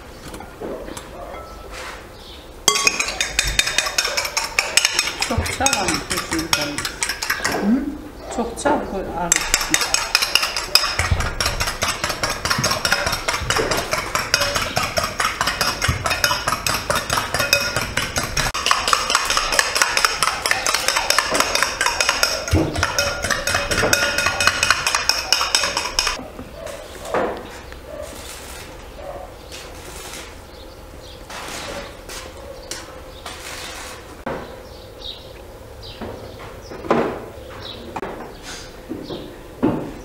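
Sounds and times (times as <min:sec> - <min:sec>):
metal utensil clinking in a bowl: 0:02.7 - 0:07.6, 0:09.3 - 0:26.2.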